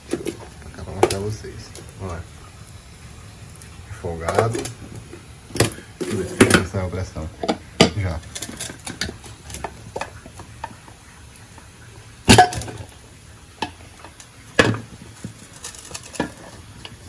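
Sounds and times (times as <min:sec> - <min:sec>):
pressure cooker lid clanking: 0:12.3 - 0:12.8
light clicks and scrapes: 0:15.2 - 0:17.0.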